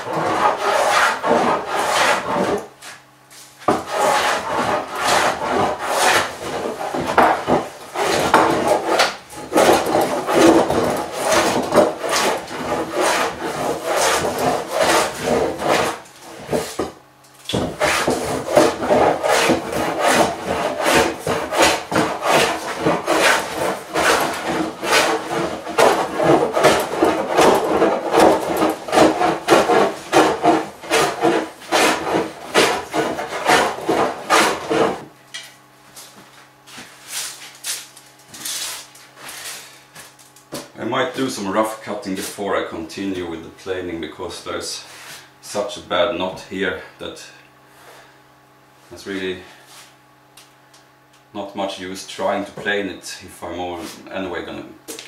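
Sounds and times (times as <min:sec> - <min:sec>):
hand plane shaving wood: 0:00.0 - 0:03.0, 0:03.6 - 0:35.1.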